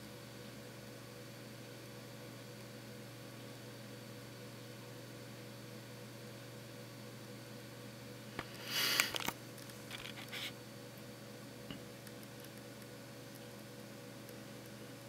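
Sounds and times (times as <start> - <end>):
low electrical hum: 0.0 - 15.0
camera handling rustling and clicks: 9.0 - 10.5.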